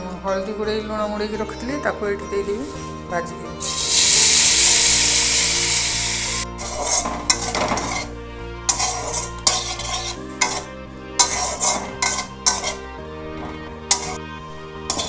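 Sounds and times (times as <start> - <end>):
background music: 0.0 - 15.0
frying hiss: 3.6 - 8.1, 13.9 - 14.2
metal spoon scraping a pan: 3.6 - 14.2, 14.8 - 15.0
spoon clinking against pan: 8.7 - 12.8, 13.9 - 14.2.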